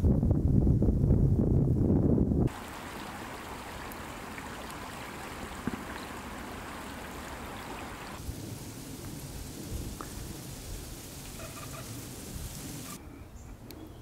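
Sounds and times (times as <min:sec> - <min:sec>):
stream water trickling: 0:02.5 - 0:13.0.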